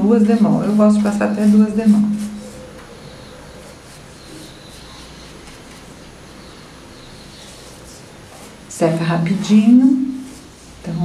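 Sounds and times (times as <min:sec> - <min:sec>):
brush swishing on paper: 0:00.6 - 0:02.7.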